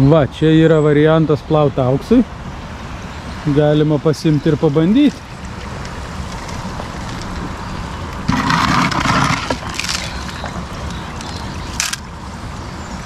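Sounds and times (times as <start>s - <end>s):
low traffic rumble: 0.0s - 13.0s
pan scraping in gravel: 5.1s - 12.0s.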